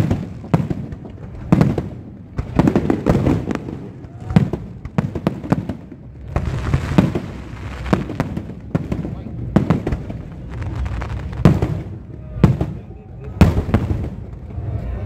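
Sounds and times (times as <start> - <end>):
fireworks bangs and booms: 0.0 - 14.8
low rumble: 5.8 - 15.0.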